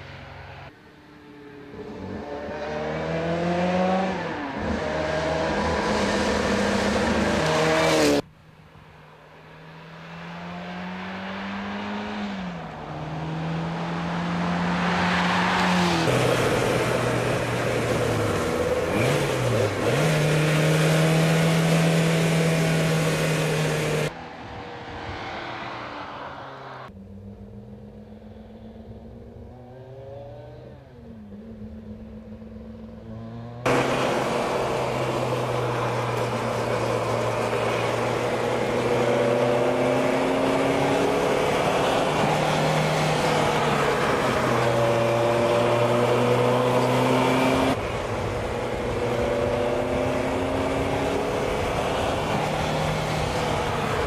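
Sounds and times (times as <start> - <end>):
car engine accelerating hard: 9.6 - 24.1, 33.1 - 54.0.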